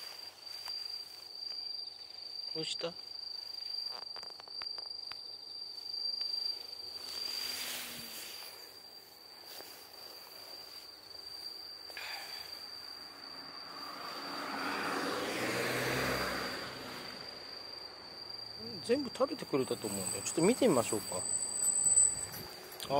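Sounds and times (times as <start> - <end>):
insect high-pitched song: 0.0 - 22.9
rustling: 6.5 - 11.6.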